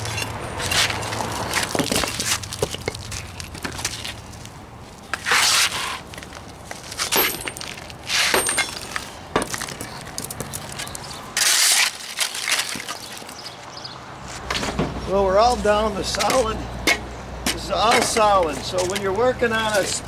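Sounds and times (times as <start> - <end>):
bricks and rubble scraping: 0.0 - 4.1.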